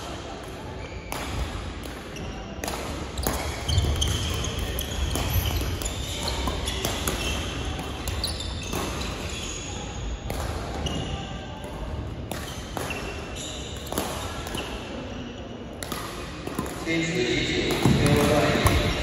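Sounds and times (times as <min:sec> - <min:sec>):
din of sports hall: 0:00.0 - 0:19.0
shoes squeaking on court floor: 0:03.2 - 0:10.2, 0:10.8 - 0:11.3, 0:12.5 - 0:14.9.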